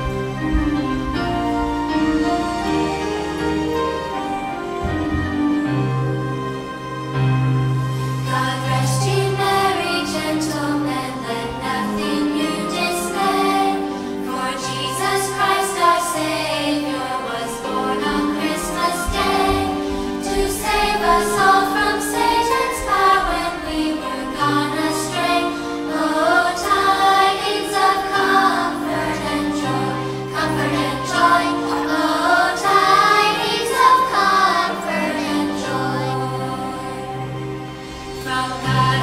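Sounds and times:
children's choir singing: 0.0s - 6.9s, 7.7s - 39.0s
instrumental accompaniment with bass: 0.0s - 12.2s.

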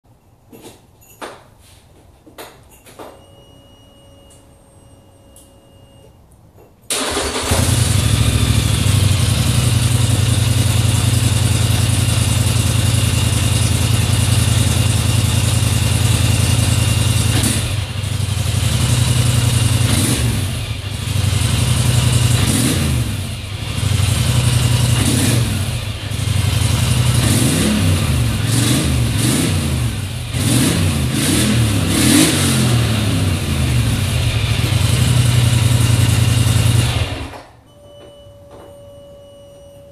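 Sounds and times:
engine revving: 6.9s - 37.3s
atv engine starting and idling: 6.9s - 37.5s.

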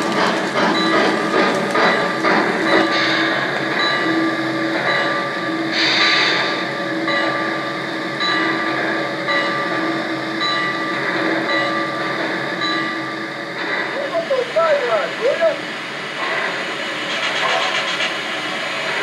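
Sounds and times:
steam hiss: 0.0s - 7.0s, 13.4s - 19.0s.

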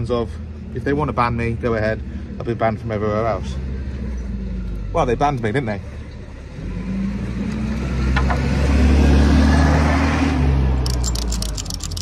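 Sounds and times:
vehicle engine passing by: 1.3s - 12.0s
rapid clicking: 10.8s - 12.0s.

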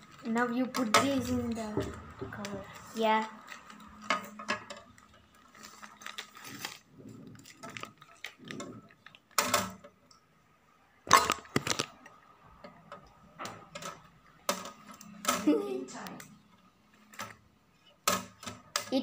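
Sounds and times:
rustling: 0.0s - 9.8s.

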